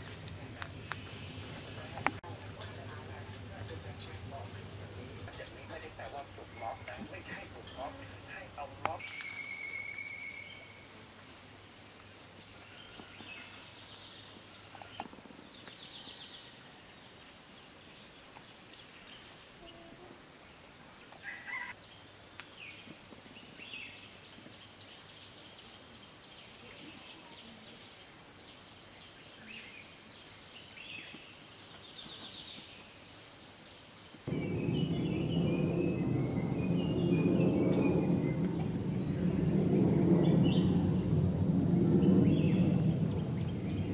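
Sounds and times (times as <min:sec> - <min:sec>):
low rushing noise: 0:00.0 - 0:08.9, 0:34.3 - 0:43.9
high insect drone: 0:00.0 - 0:43.9.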